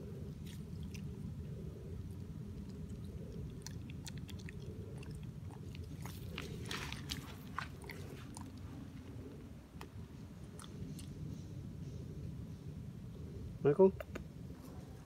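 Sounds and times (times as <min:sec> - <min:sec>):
steady low rumble: 0:00.0 - 0:15.0
monkey chewing crunchy peanuts: 0:02.1 - 0:08.7.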